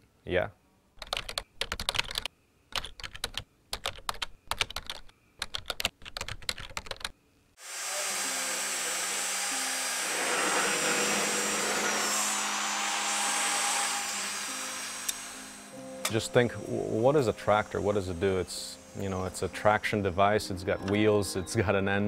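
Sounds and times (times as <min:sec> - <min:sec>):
keyboard typing: 0:01.0 - 0:07.1
power drill in steel tube: 0:07.6 - 0:20.6.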